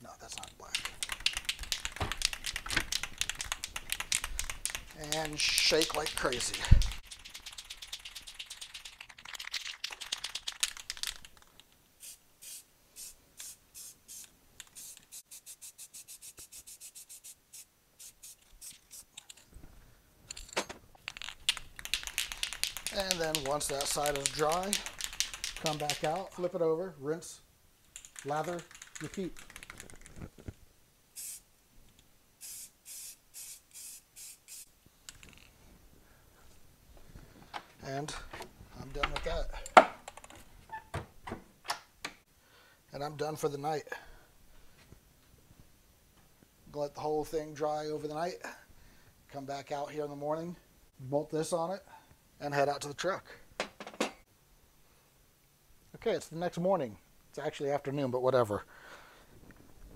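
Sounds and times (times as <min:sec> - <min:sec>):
spray can mixing ball rattling: 0:00.6 - 0:19.2, 0:21.0 - 0:26.4, 0:27.9 - 0:30.2, 0:31.2 - 0:31.4, 0:32.4 - 0:35.5
spray paint hissing bursts: 0:12.0 - 0:19.2, 0:31.1 - 0:31.5, 0:32.4 - 0:34.7.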